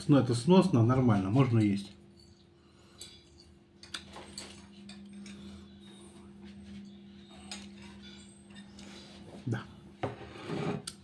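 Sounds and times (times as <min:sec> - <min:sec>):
steady low hum: 0:00.0 - 0:11.0
eating clicks and clinks: 0:01.6 - 0:05.6.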